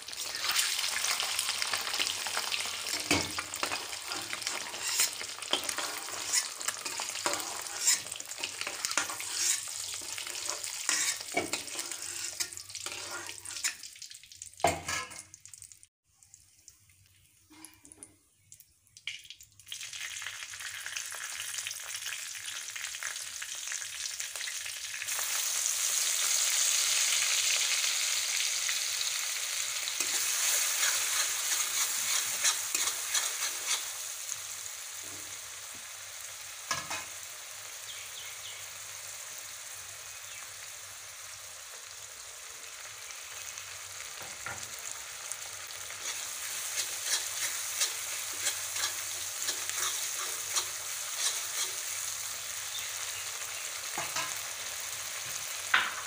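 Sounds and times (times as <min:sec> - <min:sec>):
eggs frying in hot oil: 0:00.0 - 0:56.0
oil sizzling: 0:00.0 - 0:56.0
spatula scraping metal pan: 0:02.9 - 0:13.9, 0:14.7 - 0:15.2, 0:30.0 - 0:34.0, 0:45.9 - 0:52.0.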